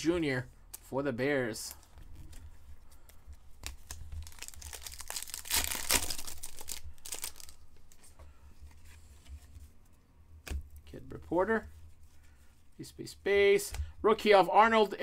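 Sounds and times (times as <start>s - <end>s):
foil wrapper crinkling and tearing: 3.6s - 7.6s.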